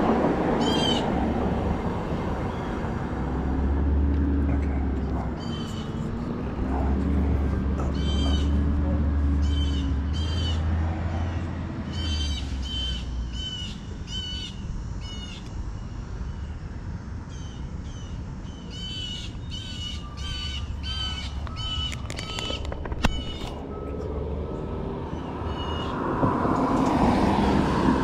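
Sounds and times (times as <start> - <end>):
bird calling harsh notes: 0.6 - 1.2, 5.3 - 6.5, 17.3 - 23.8.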